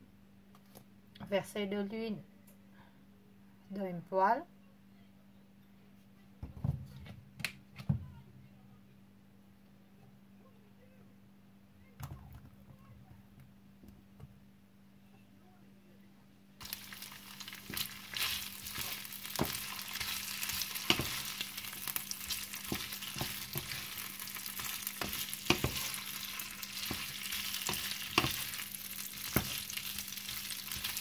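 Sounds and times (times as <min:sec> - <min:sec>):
meat sizzling in oil: 0:16.6 - 0:31.0
wooden spatula scraping a pan: 0:17.6 - 0:31.0.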